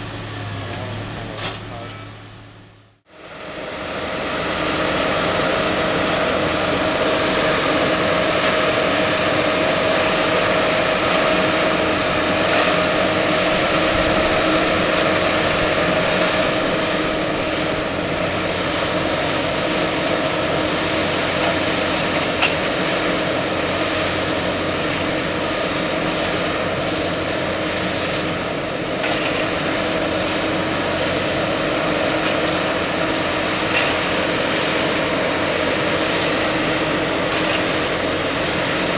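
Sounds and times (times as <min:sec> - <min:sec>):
crane engine running: 0:00.0 - 0:38.9
steady mechanical whine: 0:00.0 - 0:38.9
sharp metal clank: 0:01.3 - 0:02.0.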